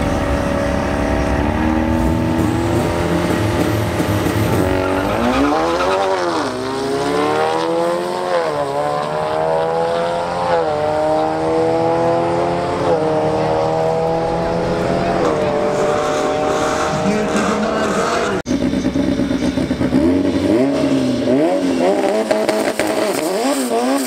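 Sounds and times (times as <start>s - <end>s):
drag cars accelerating at full throttle: 0.0s - 24.0s.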